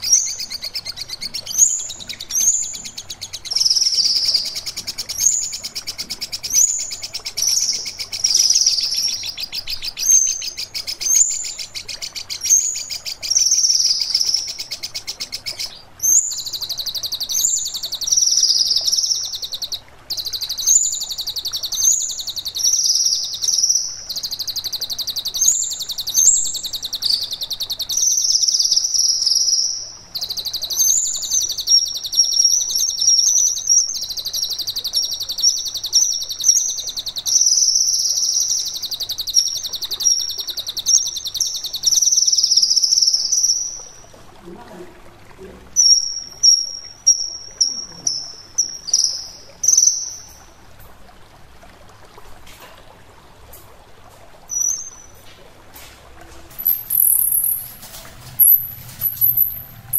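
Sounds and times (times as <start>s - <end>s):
songbird fast trilling song: 0.0s - 43.9s, 56.6s - 59.9s.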